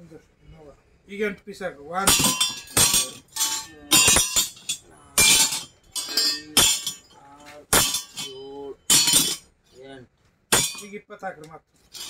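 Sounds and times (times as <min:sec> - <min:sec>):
plumbing fittings dropping onto pile: 0:02.1 - 0:07.1, 0:07.7 - 0:09.4.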